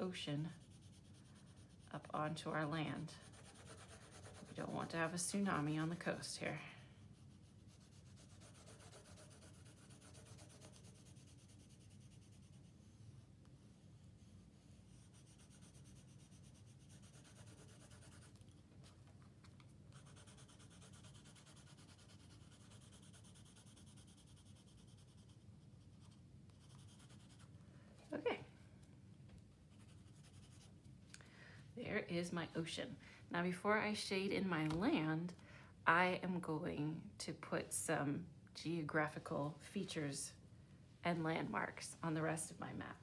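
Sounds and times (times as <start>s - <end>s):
colored pencil scratching on paper: 0.0s - 18.9s, 19.9s - 27.5s, 29.7s - 30.8s.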